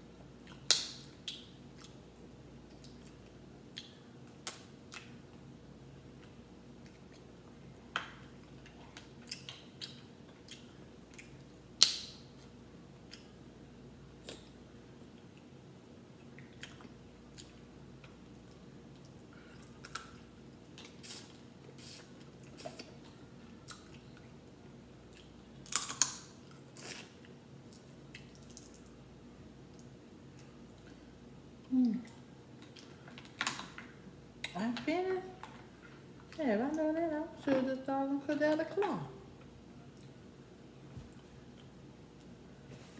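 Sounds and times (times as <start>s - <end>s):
chewing and mouth sounds: 0.4s - 2.0s, 2.6s - 5.4s, 6.1s - 13.4s, 16.2s - 24.4s, 25.0s - 28.9s, 31.6s - 33.5s
crab shells cracking: 25.6s - 26.3s.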